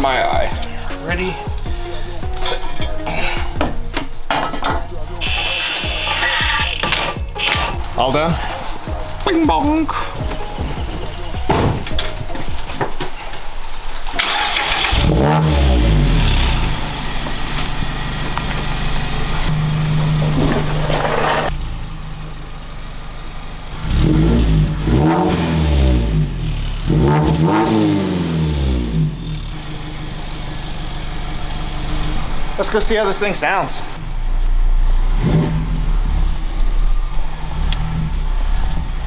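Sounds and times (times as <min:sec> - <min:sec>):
car engine revving and idling: 0:13.4 - 0:39.0.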